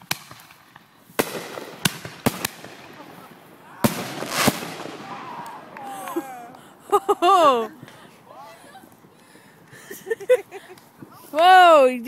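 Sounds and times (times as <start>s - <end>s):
firework bangs: 0.0s - 8.2s
firework hiss: 0.2s - 6.2s
faint voices: 2.8s - 12.0s.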